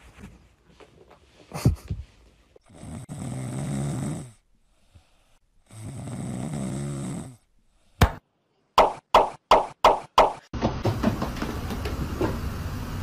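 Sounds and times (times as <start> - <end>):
cat snoring: 2.7 - 4.4, 5.6 - 7.4.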